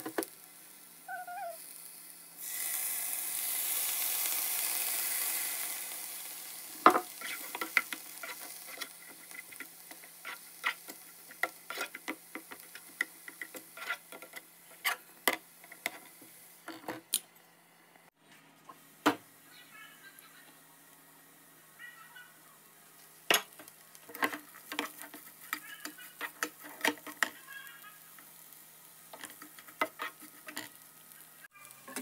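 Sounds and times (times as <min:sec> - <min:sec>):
water sizzling in a hot pan: 0:00.0 - 0:15.0.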